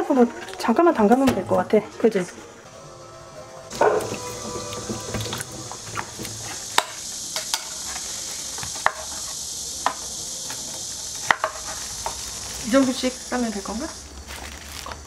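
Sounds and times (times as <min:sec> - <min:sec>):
steady hiss: 0:03.6 - 0:15.0.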